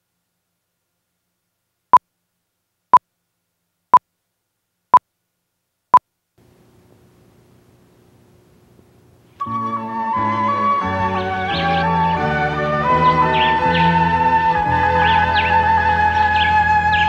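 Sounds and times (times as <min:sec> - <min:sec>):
faint low hum: 0:00.0 - 0:09.4.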